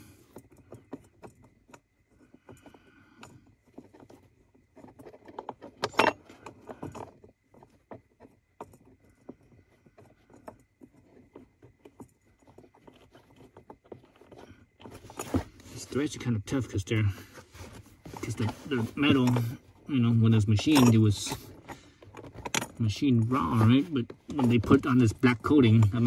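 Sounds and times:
small metallic clicks and scrapes: 0.0 - 26.0
metal clatter: 3.2 - 16.1
allen wrench turning a bolt: 5.1 - 7.1.

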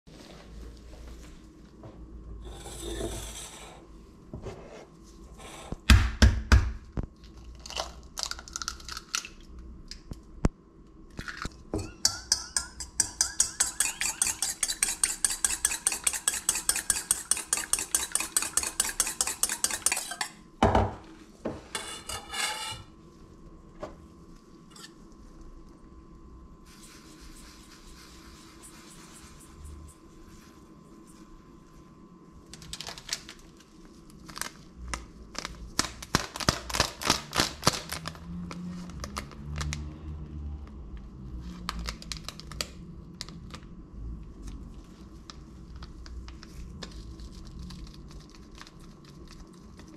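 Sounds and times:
whisk clinking in metal bowl: 11.8 - 20.3.

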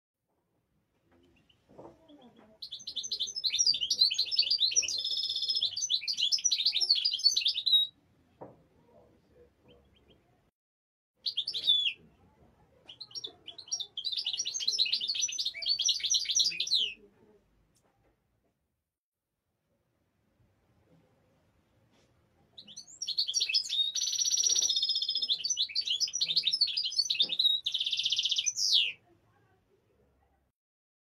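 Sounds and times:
goldfinch singing: 2.6 - 7.9, 12.9 - 17.0, 22.6 - 29.0.

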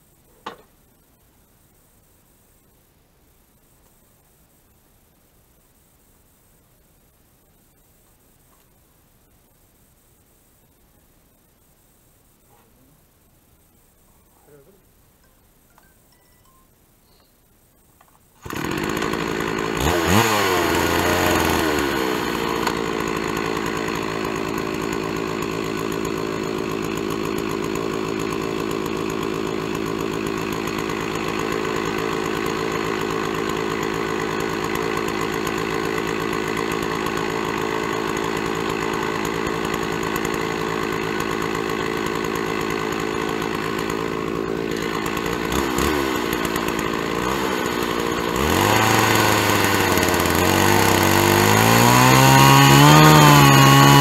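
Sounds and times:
chainsaw revving: 18.4 - 54.0.

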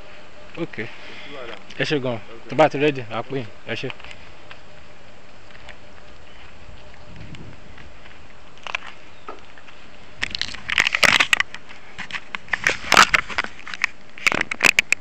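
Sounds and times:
camera handling noise: 10.2 - 15.0.

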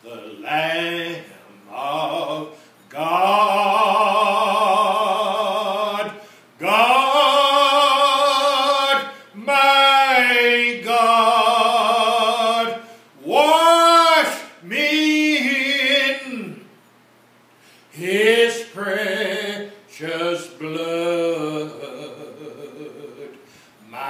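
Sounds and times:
man singing a hymn: 0.0 - 16.7, 17.9 - 24.0
man breathing: 2.5 - 2.9, 6.2 - 6.6, 12.8 - 13.2, 17.5 - 18.0, 23.4 - 23.9.

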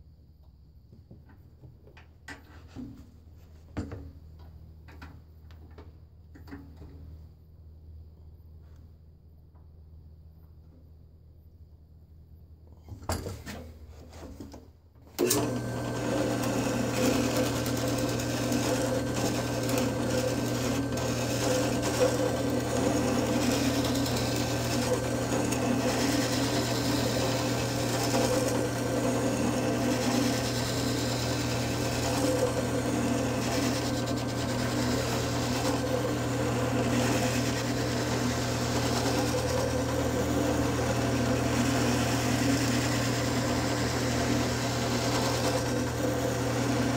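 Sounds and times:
drill press running: 15.2 - 46.9.

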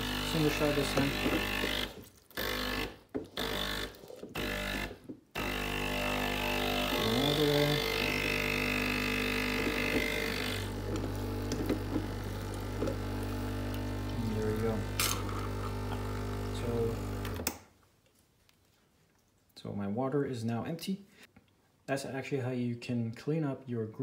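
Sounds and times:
espresso machine pump running: 0.0 - 17.4.

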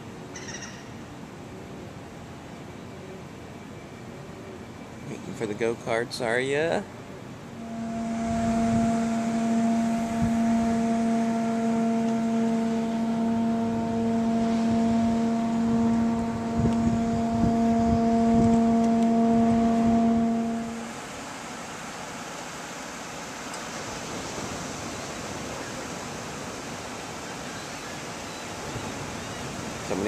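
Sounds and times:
steady drone: 7.4 - 21.9
dull low thumps: 7.6 - 20.9.

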